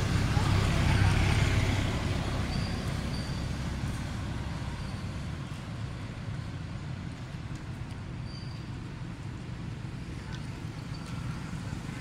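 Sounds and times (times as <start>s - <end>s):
passing vehicle rumble: 0.0s - 7.0s.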